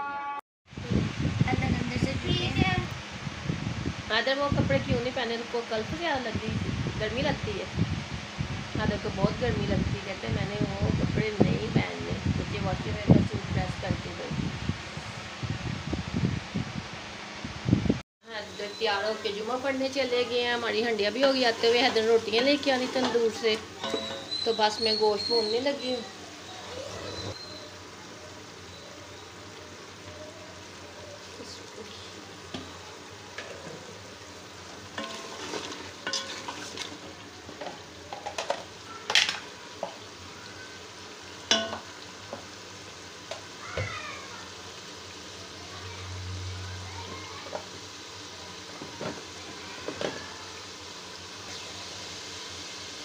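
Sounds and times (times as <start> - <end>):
meat sizzling in a pot: 18.2 - 53.0
spatula scraping and knocking pot: 22.6 - 24.6, 35.0 - 38.6.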